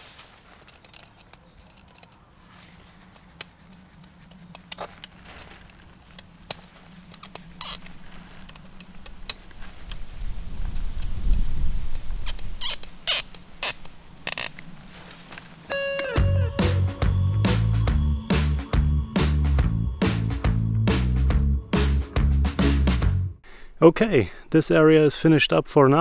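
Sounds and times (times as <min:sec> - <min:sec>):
screwdriver scraping and ticking: 0:06.2 - 0:08.9, 0:12.3 - 0:14.6
sharp clicks: 0:12.3 - 0:14.7.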